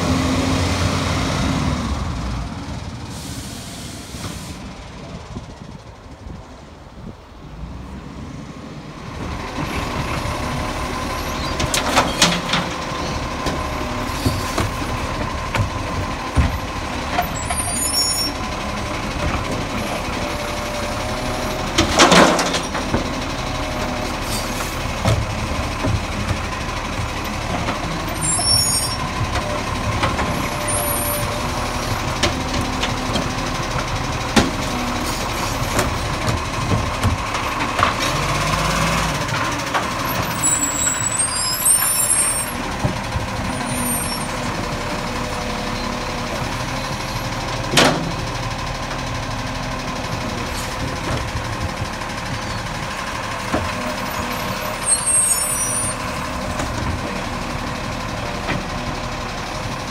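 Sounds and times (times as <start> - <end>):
recycling truck running: 0.0 - 59.9.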